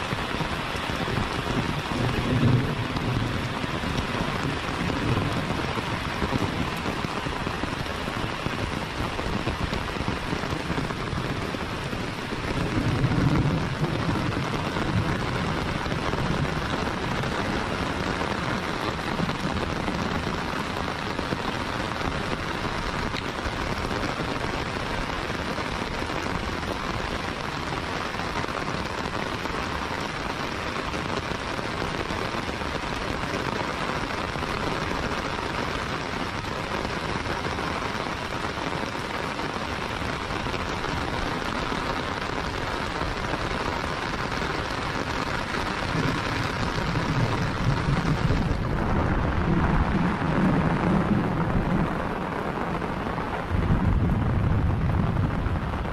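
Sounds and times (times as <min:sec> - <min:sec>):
heavy rain falling: 0:00.0 - 0:55.9
low rumble: 0:45.9 - 0:52.4, 0:53.4 - 0:55.9.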